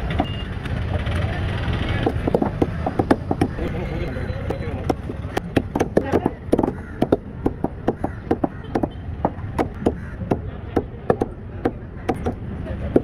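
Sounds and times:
knife chopping on wooden block: 2.1s - 3.6s, 4.8s - 13.0s.

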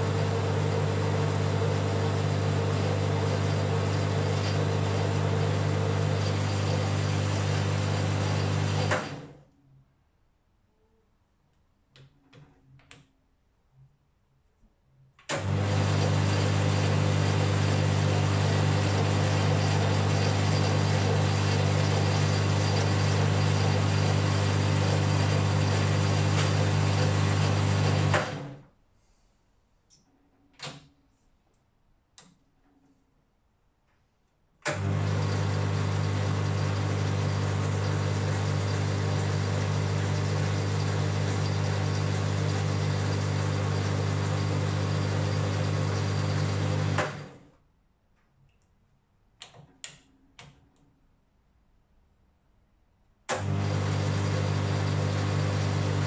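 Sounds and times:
metal lathe humming and whirring: 0.1s - 8.9s, 15.6s - 28.3s.

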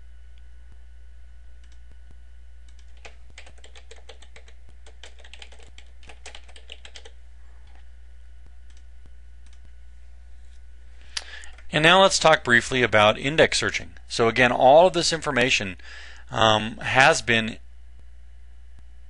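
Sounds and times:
steady low hum: 0.0s - 19.0s
computer keyboard typing: 2.7s - 7.8s.

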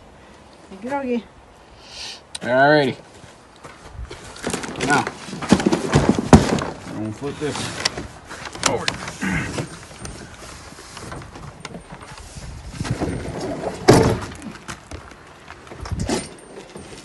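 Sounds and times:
cart thumping and knocking: 4.4s - 7.1s, 12.8s - 15.1s.

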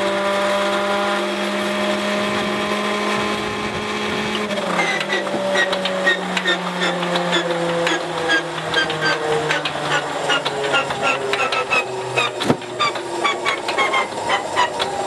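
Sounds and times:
starter whine cranking engine: 0.0s - 15.0s
rapid mechanical ticking: 4.3s - 15.0s.

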